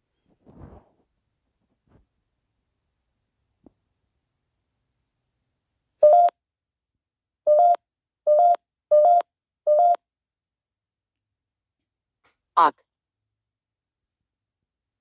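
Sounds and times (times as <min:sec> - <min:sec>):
short electronic beeps: 0:06.0 - 0:06.3, 0:07.5 - 0:10.0.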